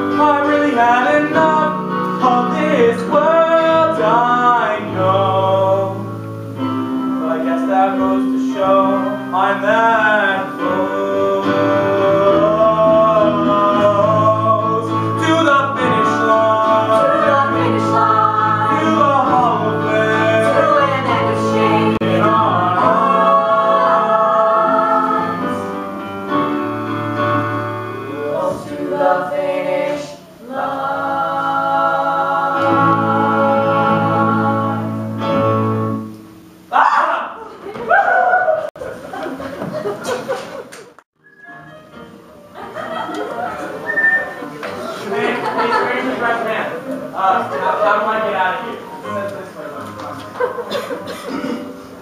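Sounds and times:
voices singing together: 0.0 - 35.4
instrumental accompaniment: 41.2 - 52.0.

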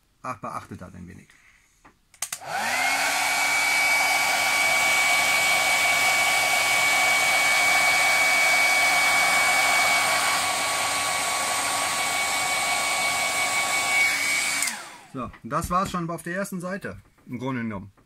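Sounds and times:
hair dryer running: 2.2 - 15.3.

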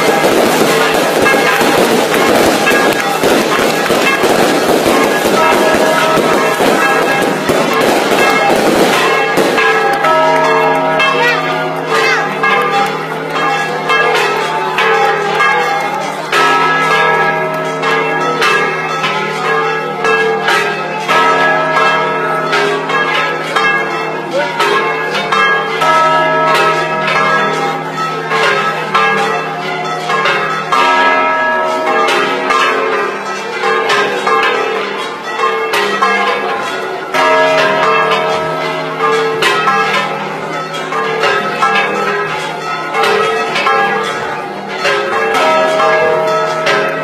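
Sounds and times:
church bells ringing: 0.0 - 47.0.

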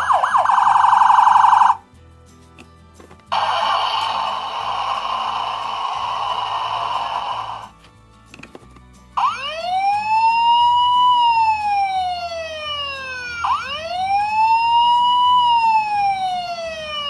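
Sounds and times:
toy fire truck siren wailing: 0.0 - 1.8, 3.4 - 7.6, 9.2 - 17.0.

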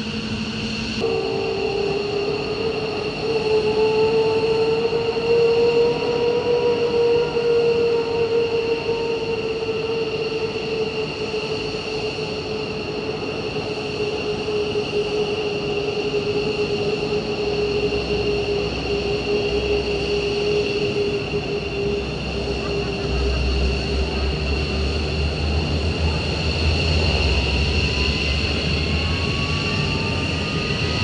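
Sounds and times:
jet turbines whining: 0.0 - 31.0.

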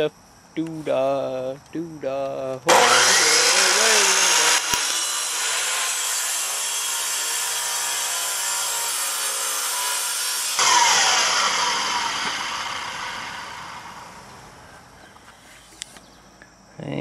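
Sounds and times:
miter saw cutting: 2.7 - 14.6
saw motor winding down: 2.7 - 14.6.

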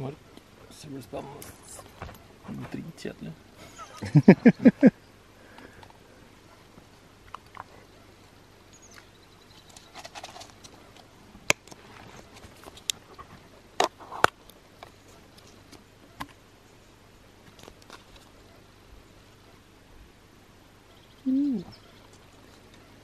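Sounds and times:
soft rustling and scraping: 9.6 - 15.8.

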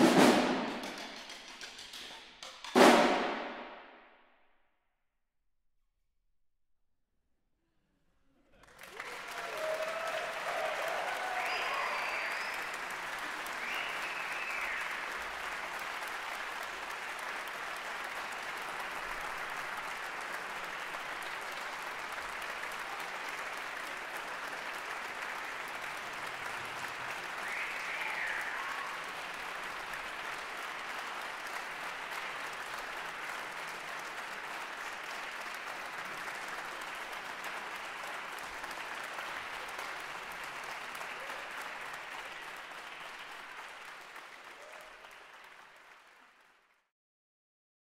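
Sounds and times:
audience applauding: 0.0 - 3.4, 8.5 - 46.9
audience shouts: 8.9 - 15.1, 27.3 - 29.3
whistle from crowd: 10.4 - 15.1, 27.4 - 29.1.

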